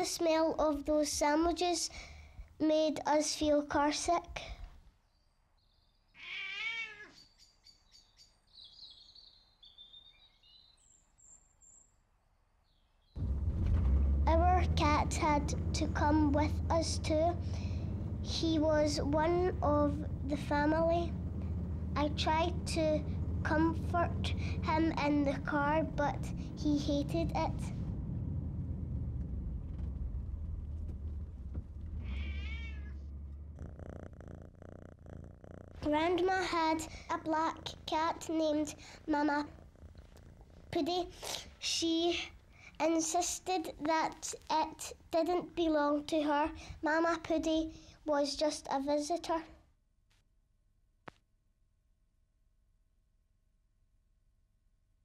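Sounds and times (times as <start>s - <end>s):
small bird chirping: 5.0s - 12.0s
cat meowing: 6.2s - 7.2s, 32.0s - 33.0s
car rumble: 13.2s - 42.8s.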